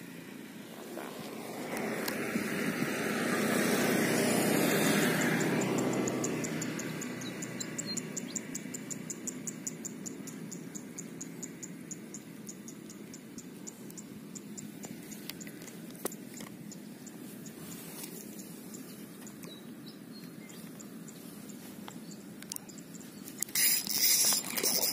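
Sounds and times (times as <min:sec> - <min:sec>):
high-pitched insect ticking: 0:04.9 - 0:17.6, 0:18.3 - 0:24.9.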